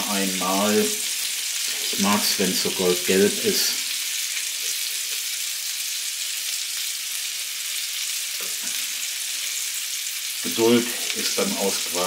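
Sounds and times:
meat patties sizzling in a frying pan: 0:00.0 - 0:12.0.

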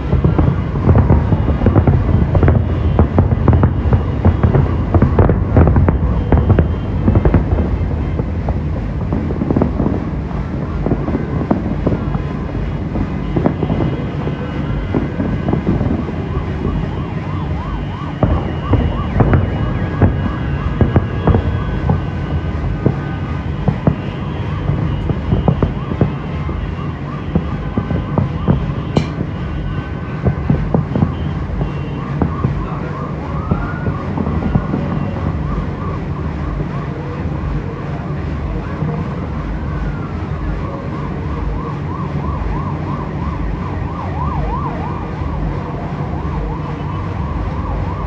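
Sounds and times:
fireworks bangs and crackles: 0:00.0 - 0:48.0
heavy low rumble: 0:00.0 - 0:48.0.

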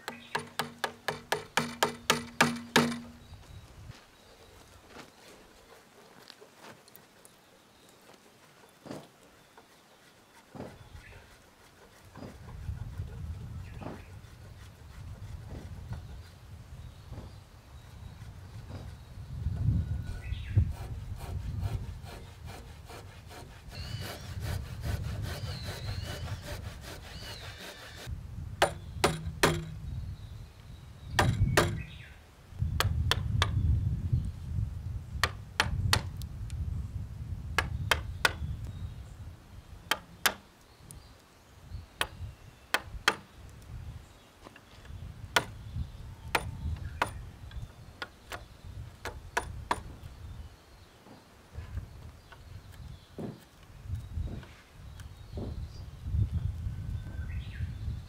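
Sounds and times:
chisel knocking on wood: 0:00.0 - 0:03.2, 0:28.6 - 0:29.8, 0:31.2 - 0:31.9, 0:37.6 - 0:38.4, 0:46.3 - 0:47.2
chisel paring and scraping wood: 0:00.0 - 0:03.2, 0:08.8 - 0:16.3, 0:20.1 - 0:29.8
handsaw cutting wood: 0:20.1 - 0:28.1.

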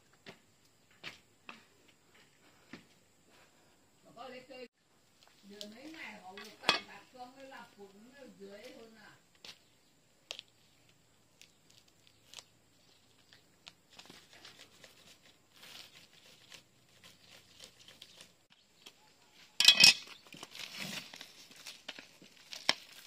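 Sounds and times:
plastic wrap crinkling: 0:13.2 - 0:18.5, 0:20.1 - 0:23.0
knife scraping plastic wrap: 0:13.9 - 0:18.4, 0:20.0 - 0:23.0
plastic wrap ripping: 0:20.3 - 0:23.0.

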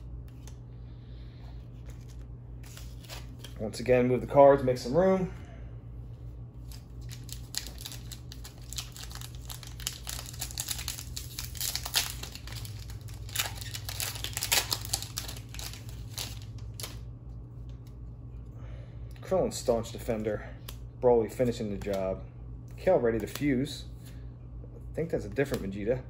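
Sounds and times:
foil wrapper crinkling and tearing: 0:06.6 - 0:17.0.

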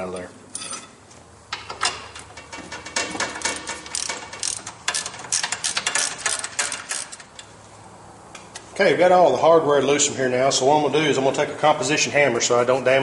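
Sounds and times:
ratchet wrench clicking: 0:02.8 - 0:07.5.

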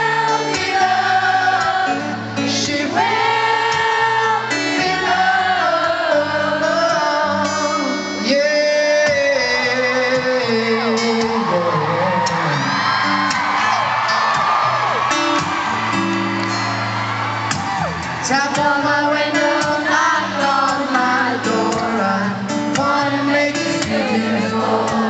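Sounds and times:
band playing: 0:00.0 - 0:25.0
strummed acoustic guitar: 0:00.0 - 0:25.0
man singing pop ballad: 0:02.4 - 0:03.1, 0:06.1 - 0:12.8, 0:18.2 - 0:25.0.

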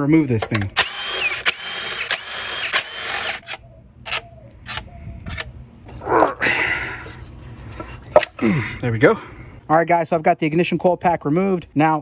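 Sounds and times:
bolts clicking and rattling: 0:00.0 - 0:02.2
cordless power tool running: 0:00.8 - 0:03.4.

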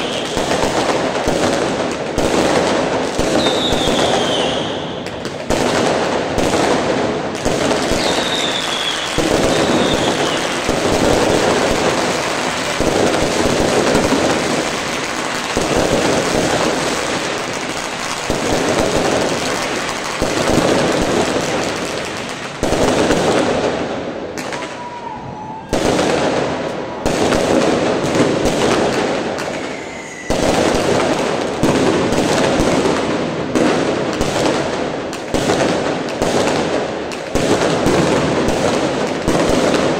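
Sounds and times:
falling firework whistles: 0:00.0 - 0:00.7, 0:03.2 - 0:05.1, 0:07.8 - 0:12.7, 0:24.4 - 0:27.4, 0:29.4 - 0:31.0
fireworks crackling and banging: 0:00.0 - 0:39.9.

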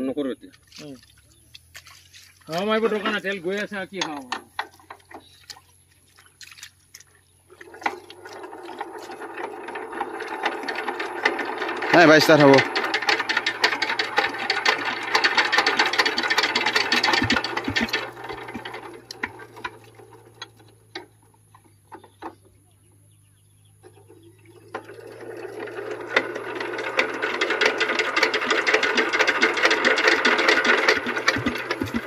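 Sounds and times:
diesel engine being cranked: 0:00.5 - 0:32.0
men talking: 0:02.5 - 0:04.5, 0:11.9 - 0:12.7.

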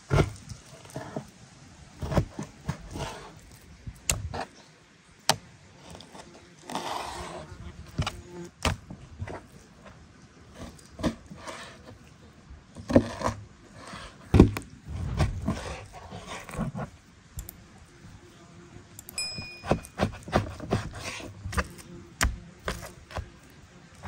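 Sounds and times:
short ringing clink: 0:19.2 - 0:20.0.

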